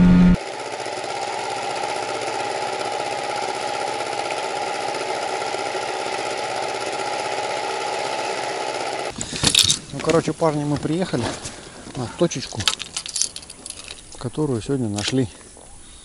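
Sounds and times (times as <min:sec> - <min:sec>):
boat motor running under way: 0:00.0 - 0:09.1
outboard motor idling: 0:00.4 - 0:09.1.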